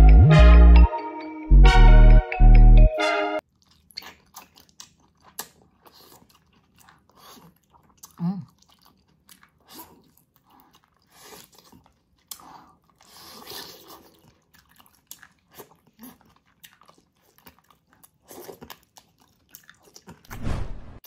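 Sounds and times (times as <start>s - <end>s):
wet sticky chewing: 3.4s - 20.3s
mouth smacks and clicks: 3.6s - 6.2s
deep thump: 20.3s - 21.0s.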